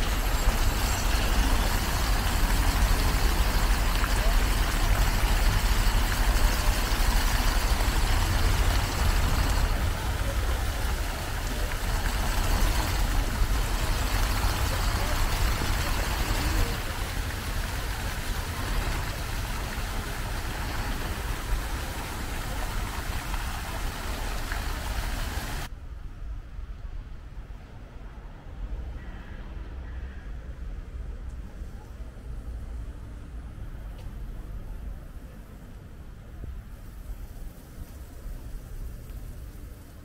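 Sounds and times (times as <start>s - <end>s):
fountain water splashing: 0.0s - 25.7s
people talking: 0.0s - 25.7s.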